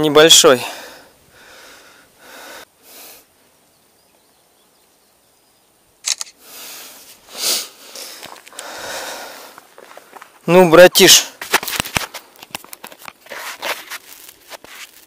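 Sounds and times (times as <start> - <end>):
camera shutter clicks: 6.0 - 6.4
rustle of hands and clothing: 9.5 - 15.0.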